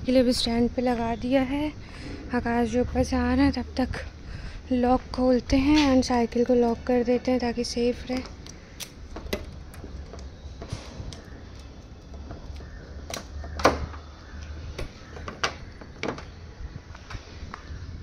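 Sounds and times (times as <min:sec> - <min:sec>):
bicycle lock clicking and knocking: 0:08.2 - 0:16.4.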